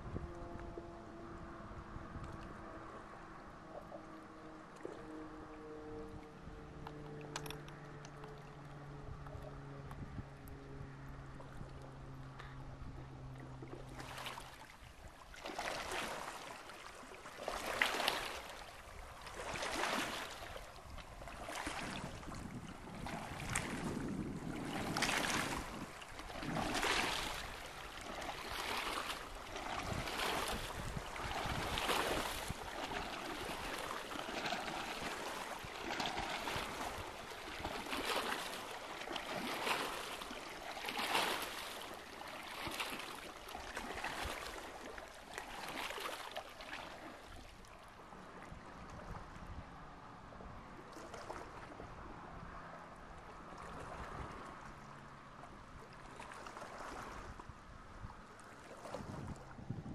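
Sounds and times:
waves splashing on rocky shore: 24.6 - 43.1.

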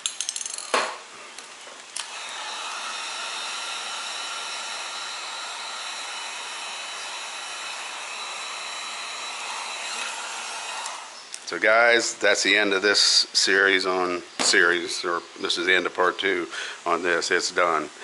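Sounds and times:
heat gun blowing air: 2.0 - 11.2.

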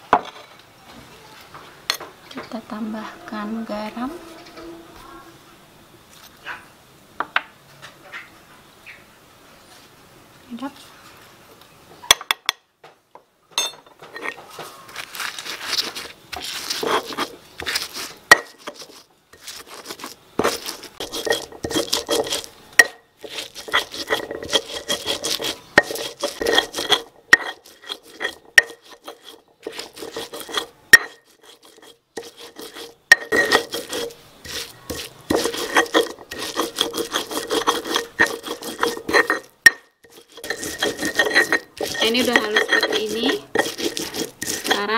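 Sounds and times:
stone pestle grinding spices: 14.1 - 44.9.

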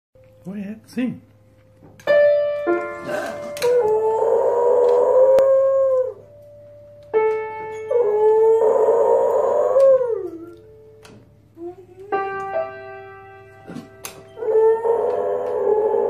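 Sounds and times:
piano chords: 0.2 - 16.0
dog howling: 3.0 - 6.3, 7.9 - 10.7, 11.6 - 12.5, 14.3 - 16.0.

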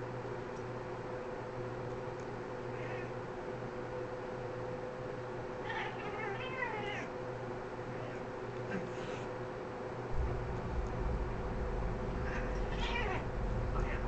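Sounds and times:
cat meowing: 2.7 - 3.1, 5.6 - 7.1, 12.2 - 14.0.

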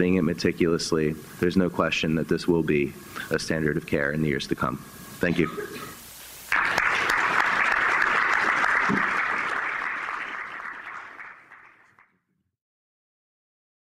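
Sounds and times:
audience applauding: 6.5 - 12.1.

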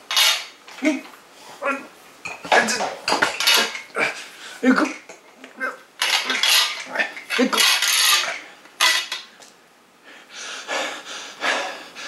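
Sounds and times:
metal shelving parts rattling: 2.6 - 3.9, 6.0 - 9.3.

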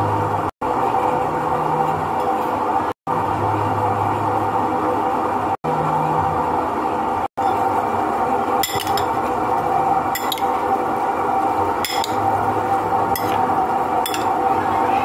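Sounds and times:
steady background hum: 0.0 - 15.0
spoon clinking against bowl: 8.6 - 9.2, 10.2 - 10.5, 11.8 - 12.2, 13.2 - 13.4, 14.0 - 14.4.

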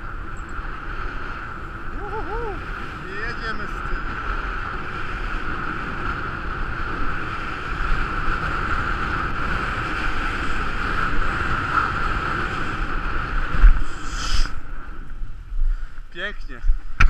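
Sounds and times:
wind on microphone: 0.0 - 17.0
skis sliding over packed snow: 2.1 - 14.9.

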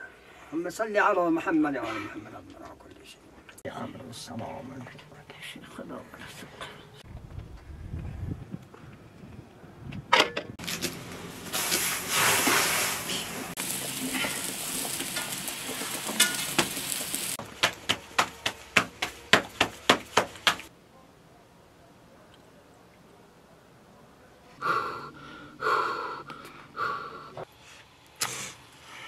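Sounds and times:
pot boiling: 10.6 - 20.7.

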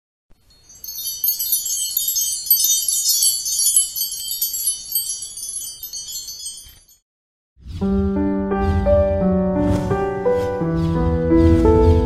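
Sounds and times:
wind chimes tinkling: 0.4 - 7.0.

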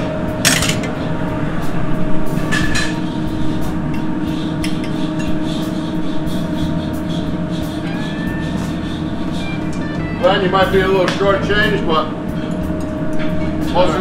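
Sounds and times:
kitchen ventilation running: 0.0 - 14.0
utensils clinking on pan: 0.4 - 1.0.

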